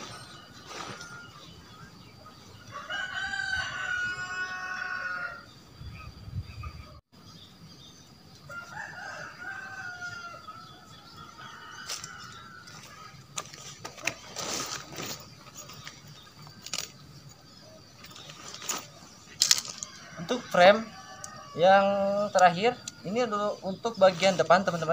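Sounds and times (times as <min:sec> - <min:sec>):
rooster crowing: 0:02.6 - 0:05.6, 0:08.5 - 0:13.2, 0:19.7 - 0:22.2
tent poles and fabric clicking: 0:11.8 - 0:17.4, 0:18.0 - 0:20.1.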